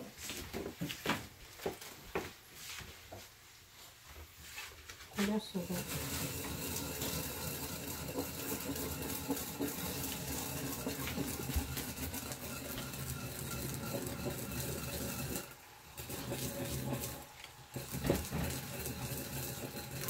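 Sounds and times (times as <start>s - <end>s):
pestle grinding seeds in mortar: 5.2s - 20.0s.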